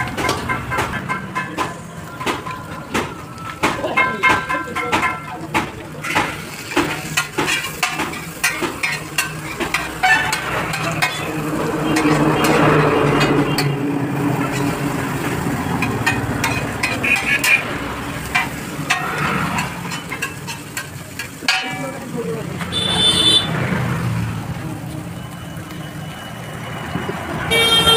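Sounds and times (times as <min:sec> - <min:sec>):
food sizzling on griddle: 0:00.0 - 0:26.8
metal spatula scraping iron: 0:06.0 - 0:13.8, 0:15.8 - 0:17.7.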